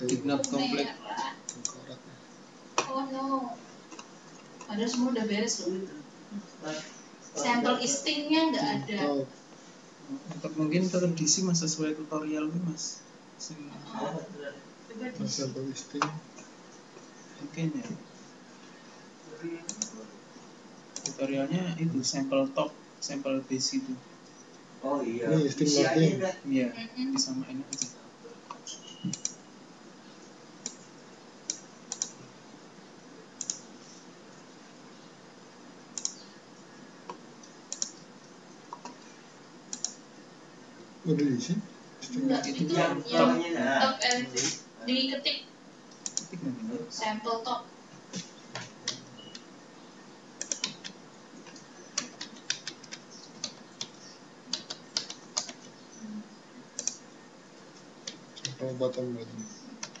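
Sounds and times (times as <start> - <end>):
faint steady hiss: 0.0 - 60.0
mouse and keyboard clicks: 36.0 - 36.2, 37.7 - 38.0, 50.4 - 55.7.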